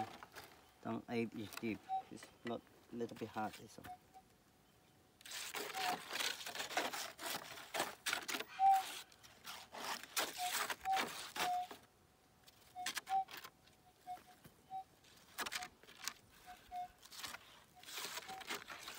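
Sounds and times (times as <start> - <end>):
scraping and crunching: 0.0 - 0.7, 5.2 - 18.9
metal detector beeps: 0.0 - 0.8, 1.4 - 2.6, 3.6 - 4.3, 10.4 - 11.8, 12.8 - 14.9
metal detector threshold tone: 1.4 - 2.6.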